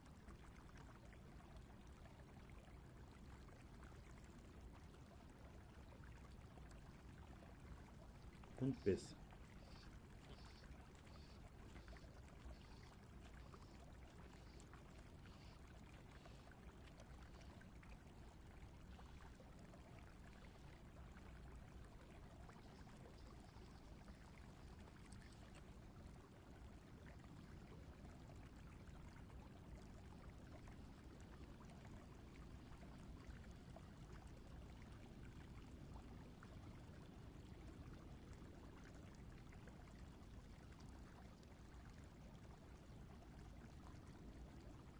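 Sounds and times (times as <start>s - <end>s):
running river water: 0.0s - 44.9s.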